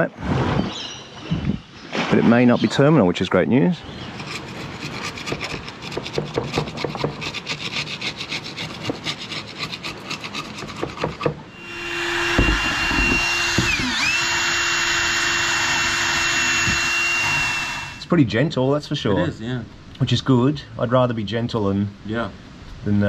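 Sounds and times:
small rotary tool running: 0:11.5 - 0:18.0.

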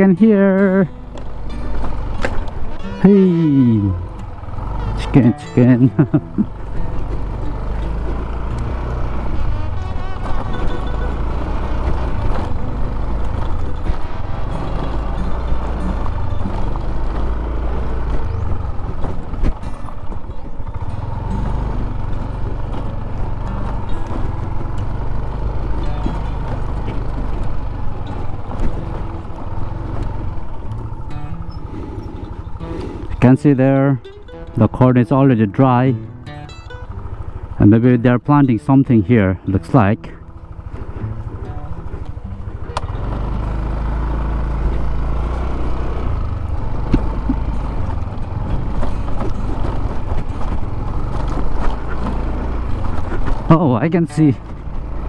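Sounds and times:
music: 0:00.0 - 0:44.0
knocks and rattles on rough road: 0:00.0 - 0:55.0
scooter engine running: 0:00.0 - 0:55.0.

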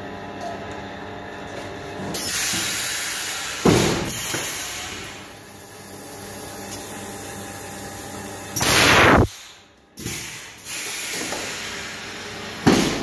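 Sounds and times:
sharp pneumatic thump: 0:02.2 - 0:05.1, 0:08.6 - 0:11.6, 0:12.6 - 0:13.0.

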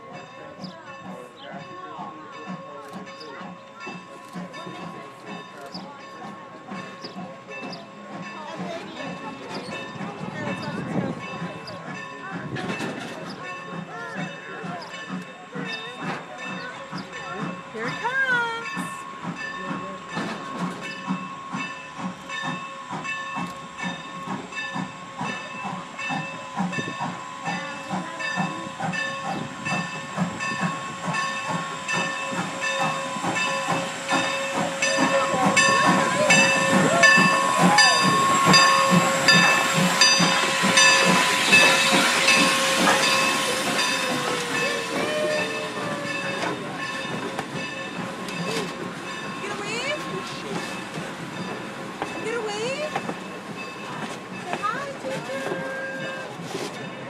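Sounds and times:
steam locomotive running: 0:00.0 - 0:57.0
steam hiss: 0:15.1 - 0:57.0
bell ringing: 0:17.8 - 0:54.8.

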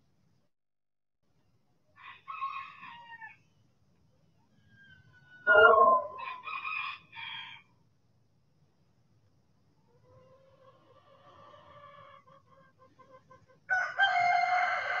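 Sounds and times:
roosters crowing: 0:05.0 - 0:07.6, 0:13.7 - 0:15.0.

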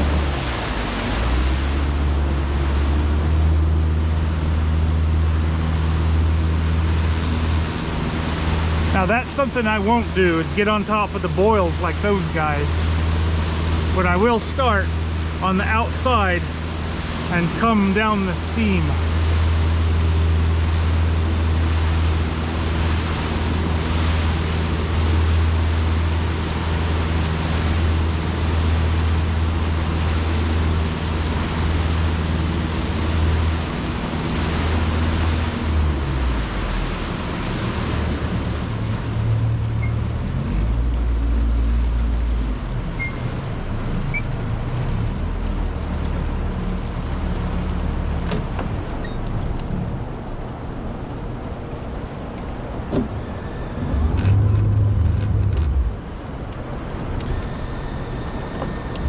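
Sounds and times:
water rushing around boat: 0:00.0 - 0:59.0
low steady drone: 0:49.2 - 0:59.0.

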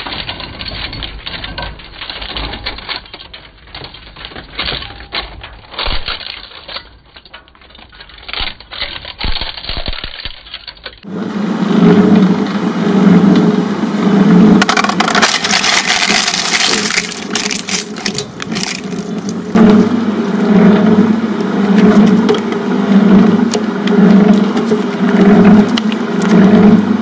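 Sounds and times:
blades crunching plastic: 0:00.0 - 0:11.2, 0:14.6 - 0:27.0
shredder humming: 0:11.0 - 0:27.0.

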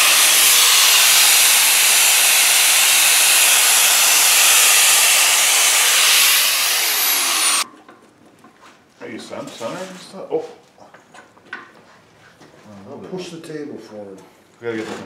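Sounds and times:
angle grinder grinding steel: 0:00.0 - 0:07.6.

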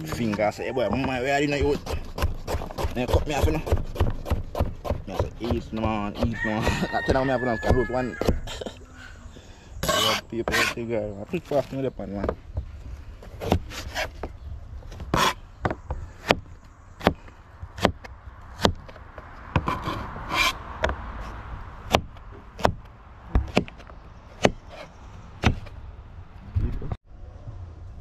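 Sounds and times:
knife chopping on plastic board: 0:00.0 - 0:08.4.

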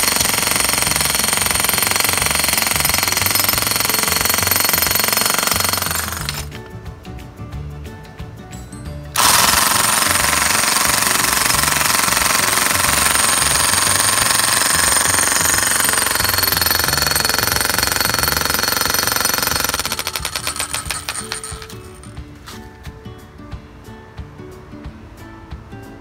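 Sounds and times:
electric hammer chiselling concrete: 0:00.0 - 0:06.5, 0:09.2 - 0:22.2.

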